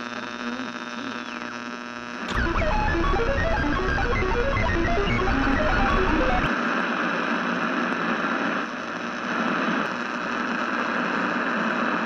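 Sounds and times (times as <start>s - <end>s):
hissing static: 0.0s - 12.0s.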